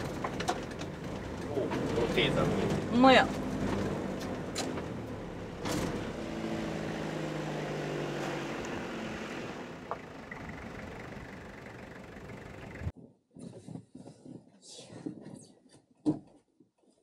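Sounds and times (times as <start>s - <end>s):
vehicle engine running: 0.0s - 12.9s.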